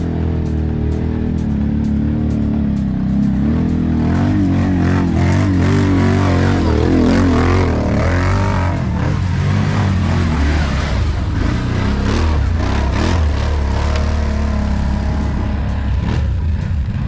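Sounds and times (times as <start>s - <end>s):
quad bike engines revving: 0.0s - 17.0s.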